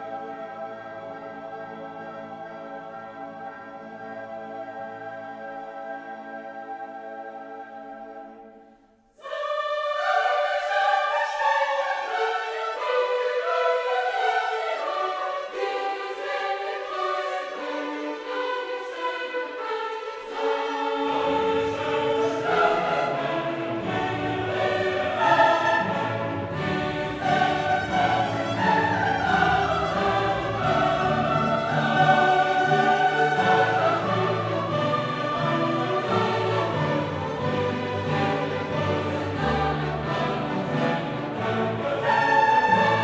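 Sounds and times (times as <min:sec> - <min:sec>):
choir singing: 0:00.0 - 0:43.0
orchestral music: 0:00.0 - 0:43.0.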